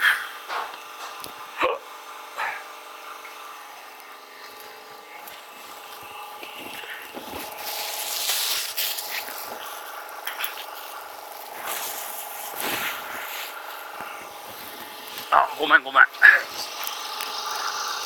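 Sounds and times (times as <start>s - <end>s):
plastic packaging crinkling: 4.5s - 15.3s.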